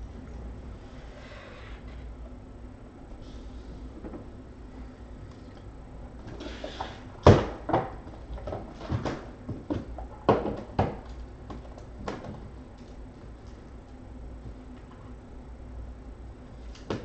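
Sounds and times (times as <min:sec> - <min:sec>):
knocks of objects being handled: 0:06.8 - 0:13.4.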